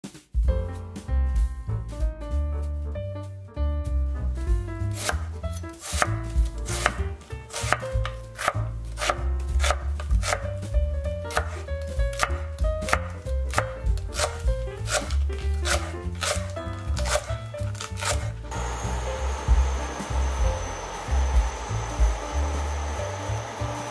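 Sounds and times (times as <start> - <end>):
knife chopping on wooden board: 4.9 - 21.0.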